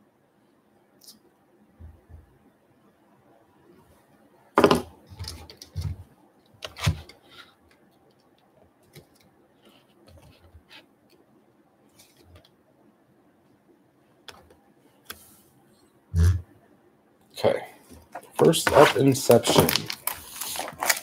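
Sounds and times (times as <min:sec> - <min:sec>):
packaging crackling and rustling: 0:18.2 - 0:21.0.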